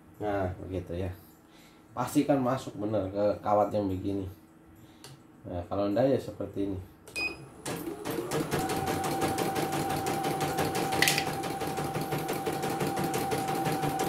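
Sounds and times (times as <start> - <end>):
embroidery machine stitching: 7.6 - 14.0.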